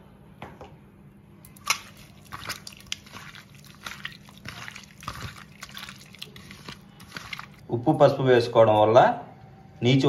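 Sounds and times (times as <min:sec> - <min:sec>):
wet squishing of prawns by hand: 0:01.4 - 0:07.7.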